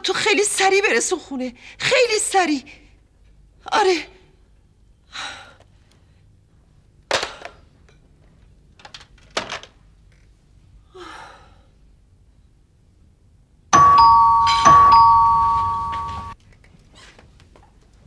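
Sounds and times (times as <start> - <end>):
loud ringing chime: 13.8 - 16.4.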